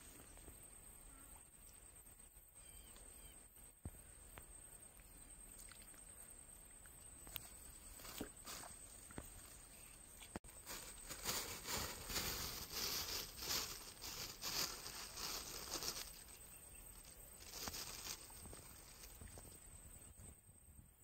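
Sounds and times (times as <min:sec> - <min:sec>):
plastic bag crinkling: 0:10.5 - 0:16.4, 0:17.4 - 0:19.1.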